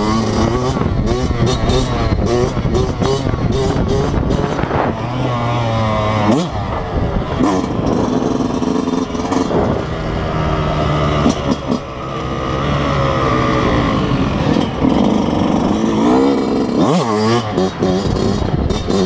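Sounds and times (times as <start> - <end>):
two-stroke motorcycle engine: 0.0 - 19.0.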